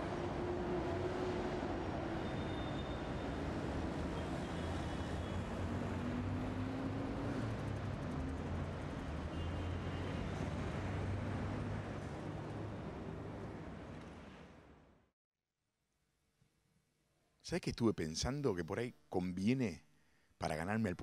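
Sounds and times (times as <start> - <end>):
passing vehicles rumbling: 3.2 - 14.6.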